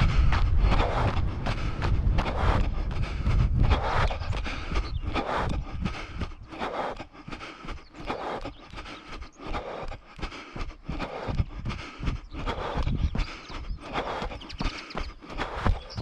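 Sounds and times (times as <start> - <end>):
low microphone rumble: 0.0 - 7.4, 10.9 - 13.4
running footsteps on dirt: 0.0 - 16.0.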